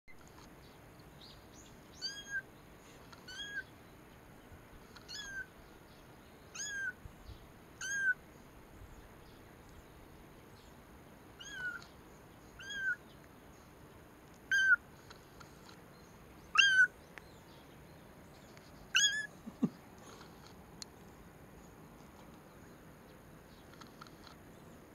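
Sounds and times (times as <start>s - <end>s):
kitten mewing: 16.6s - 16.9s, 19.0s - 20.2s.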